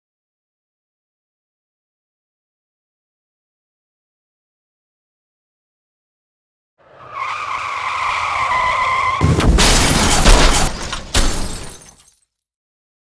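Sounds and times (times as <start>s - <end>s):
tyres screeching: 6.8s - 10.8s
loud car crash: 6.9s - 12.0s
bang: 9.1s - 11.9s.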